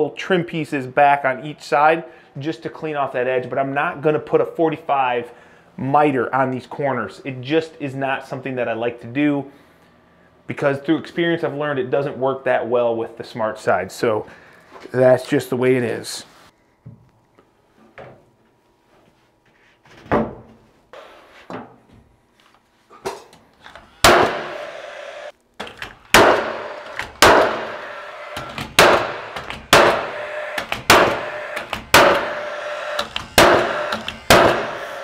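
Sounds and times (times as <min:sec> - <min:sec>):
nail gun fan whirring: 0:23.6 - 0:35.0
nail gun shooting nails: 0:24.0 - 0:24.7, 0:25.6 - 0:35.0.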